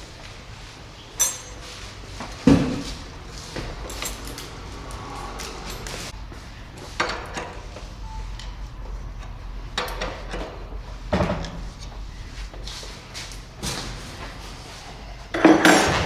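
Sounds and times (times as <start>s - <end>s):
clinks of hand tools and metal parts: 1.2s - 1.8s, 3.6s - 6.1s.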